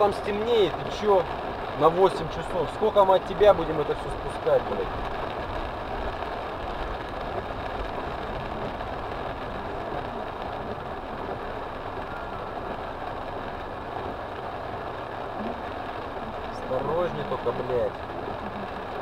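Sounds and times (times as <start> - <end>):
car engine running: 0.0 - 19.0
heavy rain on car: 0.0 - 19.0.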